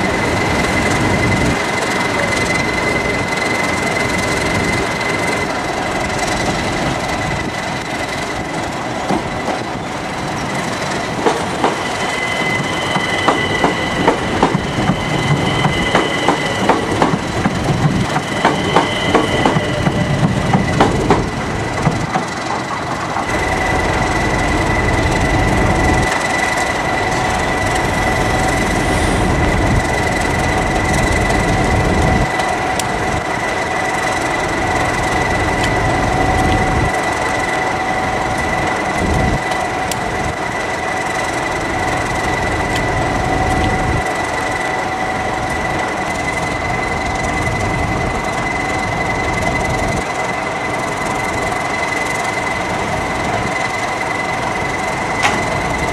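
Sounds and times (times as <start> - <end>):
low rumble of train rolling: 0.0 - 55.9
train wheels squealing on track: 0.0 - 55.9.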